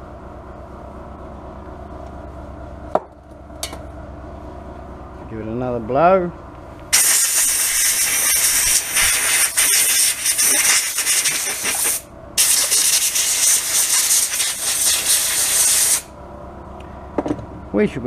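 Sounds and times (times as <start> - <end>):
compressed air blow gun hissing: 6.9 - 16.1.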